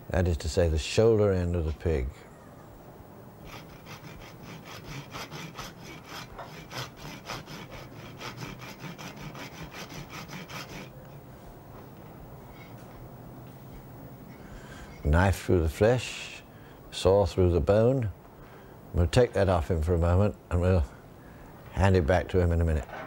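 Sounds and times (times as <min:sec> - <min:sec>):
hand saw cutting bone: 0:03.4 - 0:10.9.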